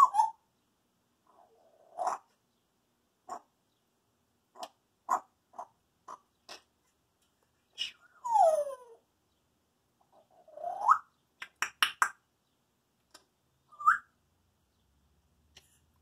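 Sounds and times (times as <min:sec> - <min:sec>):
parrot chirp: 0:00.0 - 0:00.4, 0:01.3 - 0:02.3, 0:10.1 - 0:12.2, 0:13.7 - 0:14.2
parrot clicking: 0:11.4 - 0:12.2
parrot whistling: 0:13.7 - 0:14.1.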